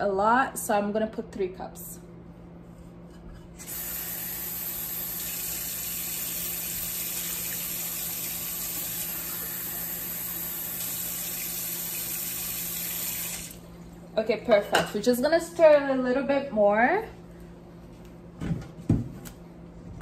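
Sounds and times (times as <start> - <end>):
water running into pot: 3.6 - 13.7.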